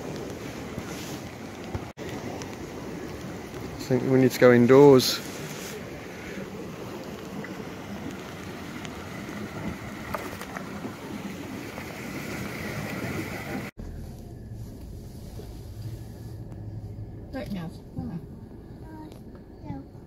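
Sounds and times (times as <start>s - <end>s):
light rain on lake: 0.0s - 16.3s
low hum inside moving car: 13.4s - 20.0s.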